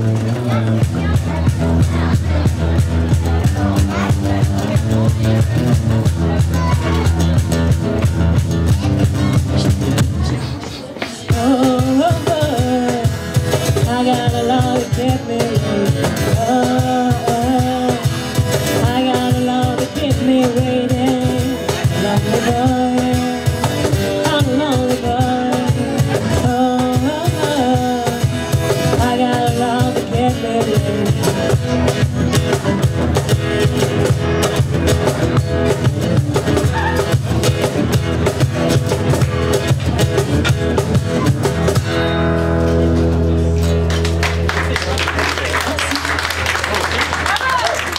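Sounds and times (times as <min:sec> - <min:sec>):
strummed acoustic guitar: 0:00.0 - 0:44.5
percussion beat: 0:00.0 - 0:47.9
woman singing into a microphone: 0:11.0 - 0:32.1.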